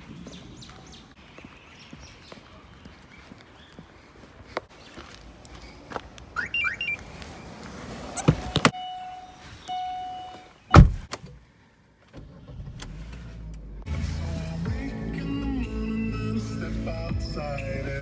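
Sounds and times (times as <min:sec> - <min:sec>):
electronic chirps: 0:06.4 - 0:07.0, 0:08.5 - 0:10.4
car door shutting: 0:08.0 - 0:09.2, 0:10.7 - 0:11.4
car door latch clicking: 0:08.2 - 0:08.8, 0:10.7 - 0:11.3.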